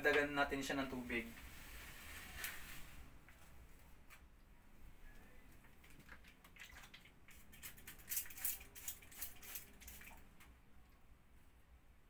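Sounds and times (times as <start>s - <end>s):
spray bottle squirting water: 6.6s - 10.2s.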